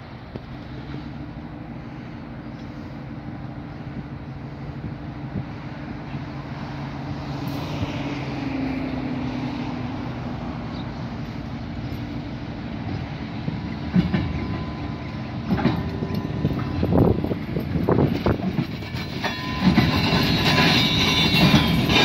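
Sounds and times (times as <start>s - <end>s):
diesel locomotive engine drone: 0.0s - 22.0s
train wheel clatter: 11.1s - 22.0s
sharp knocks from rail cars: 12.8s - 22.0s.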